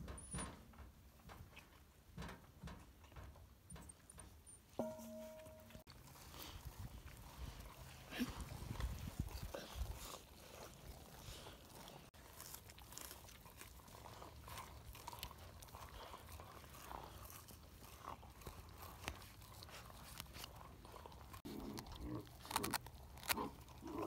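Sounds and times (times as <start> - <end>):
puppies chewing meat: 5.8 - 24.0.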